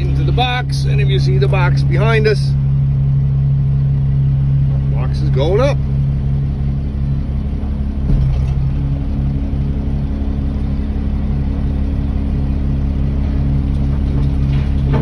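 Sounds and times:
diesel truck engine running: 0.0 - 15.0
short thump: 8.0 - 8.9.

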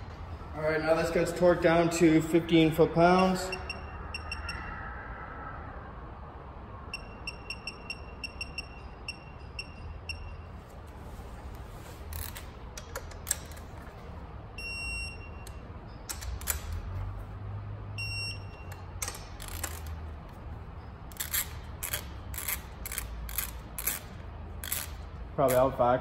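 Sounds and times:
torque wrench beeping: 3.2 - 4.6, 6.9 - 10.6, 14.6 - 16.8, 18.0 - 20.1, 20.8 - 25.8
wrench ratchet clicking: 18.8 - 20.1, 21.1 - 25.8.

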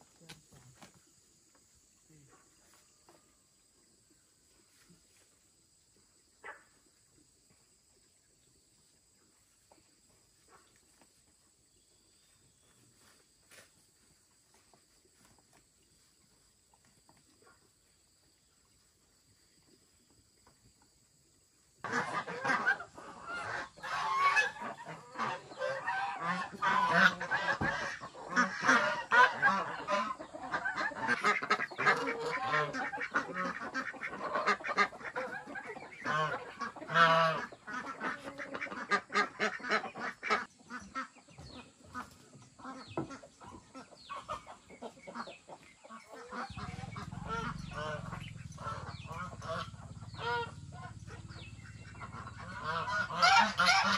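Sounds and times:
geese honking: 21.8 - 41.2, 41.9 - 53.9.

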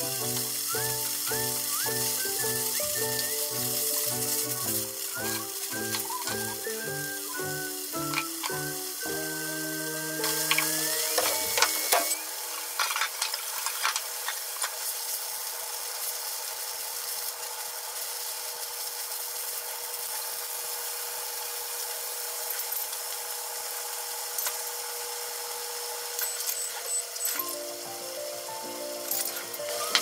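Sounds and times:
kitchen appliance humming: 0.0 - 30.0
utensils clicking: 8.0 - 8.7, 10.2 - 12.2.

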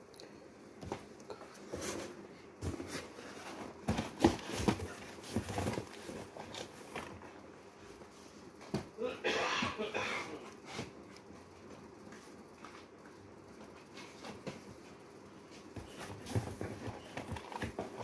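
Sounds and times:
cardboard boxes knocking on metal shelving: 2.6 - 7.0.

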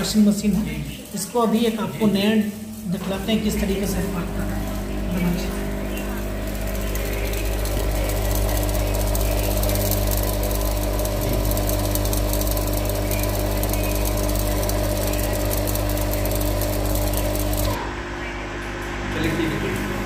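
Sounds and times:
washing machine motor humming: 0.0 - 20.0.

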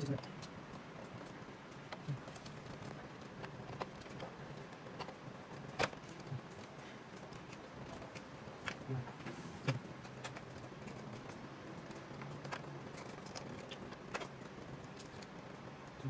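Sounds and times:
steady low hum: 0.0 - 16.0
wires rustling against plastic: 0.0 - 16.0.

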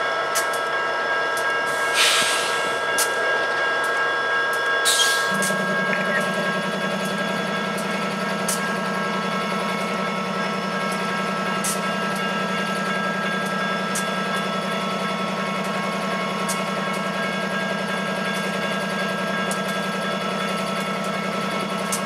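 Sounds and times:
constant whine: 0.0 - 22.0
locomotive engine rumble: 4.8 - 22.0.

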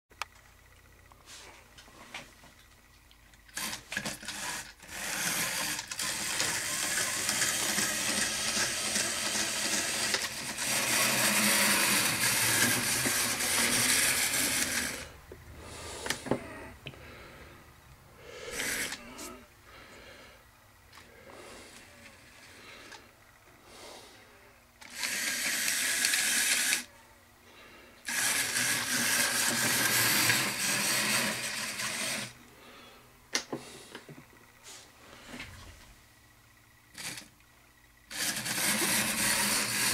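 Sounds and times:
model train motor whirring: 3.4 - 15.2, 18.4 - 19.4, 24.8 - 26.9, 28.0 - 32.4, 36.9 - 37.4, 38.0 - 39.9.

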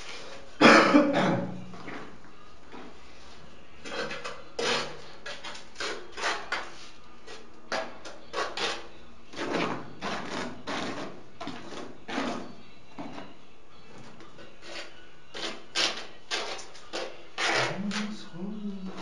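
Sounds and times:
trowel scraping mortar: 3.8 - 12.5, 14.6 - 18.2.

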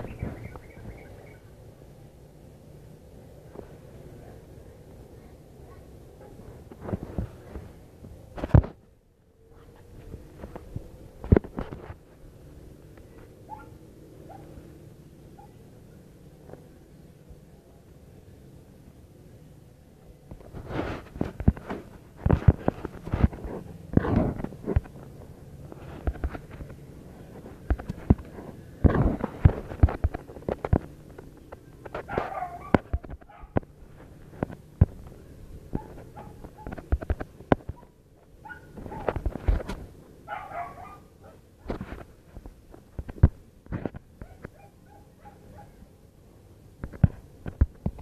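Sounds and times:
short rustling scrapes: 20.4 - 30.7.

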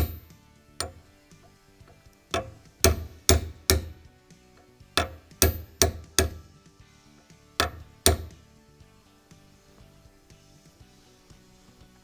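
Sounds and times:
hammer tapping metal punch: 0.0 - 1.1, 1.8 - 4.0, 4.6 - 6.5, 7.6 - 8.4.

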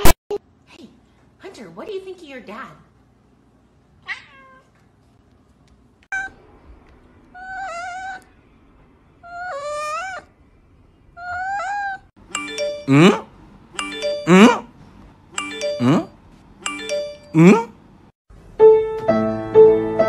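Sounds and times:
cat meowing: 4.0 - 4.8
chiming jingle: 12.3 - 13.1.

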